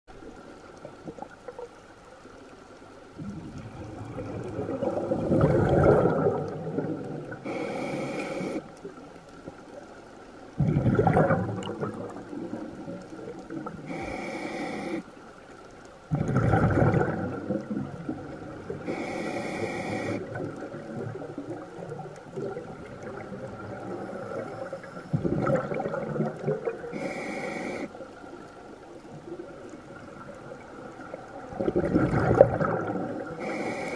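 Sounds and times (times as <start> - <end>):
exhalation bubbling rush: 3.2 - 8.6, 10.6 - 14.1, 16.1 - 21.6, 22.3 - 27.9, 31.5 - 33.9
regulator inhalation hiss: 7.4 - 8.7, 13.9 - 15.1, 18.8 - 20.4, 26.9 - 28.0, 33.4 - 33.9.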